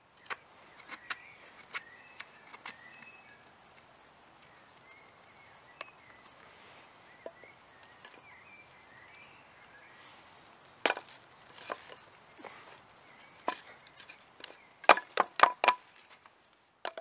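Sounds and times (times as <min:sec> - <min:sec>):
faint bird chirps: 0:00.1 - 0:10.4.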